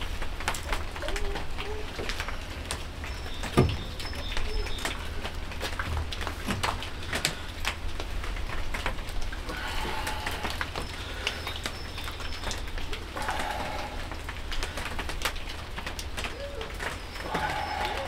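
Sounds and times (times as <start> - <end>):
rain pattering: 0.0 - 18.0
birds calling: 2.2 - 5.4, 9.5 - 15.1, 16.2 - 18.0.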